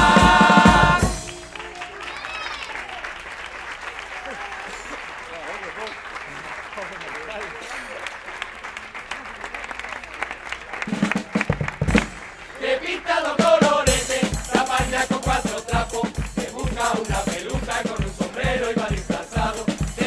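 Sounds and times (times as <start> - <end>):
bass drum beat: 0.0 - 1.6, 11.0 - 12.2, 13.9 - 20.0
choir singing: 0.0 - 1.6, 12.5 - 20.0
crowd noise: 0.0 - 20.0
rattling percussion: 13.9 - 20.0.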